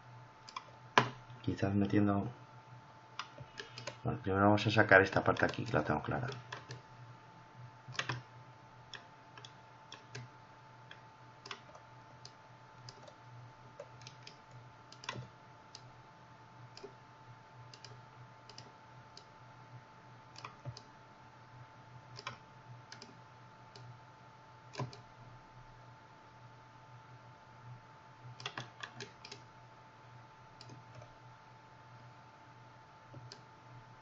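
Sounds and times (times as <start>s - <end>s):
low electrical hum: 0.0s - 34.0s
mouse and keyboard clicks: 3.2s - 4.0s, 5.3s - 6.8s, 7.9s - 8.2s, 10.9s - 11.8s, 15.0s - 15.9s, 24.8s - 25.0s, 28.4s - 29.5s.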